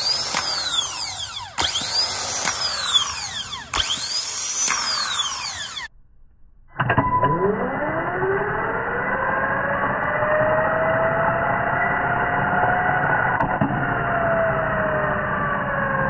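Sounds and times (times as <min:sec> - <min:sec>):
starter motor whining: 0:00.0 - 0:05.9.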